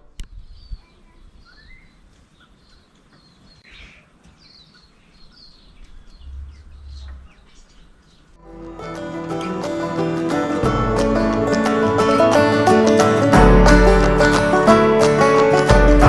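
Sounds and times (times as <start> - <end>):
birds chirping and whistling: 0.2 - 8.4
low rumble: 5.9 - 7.5
music: 8.4 - 16.0.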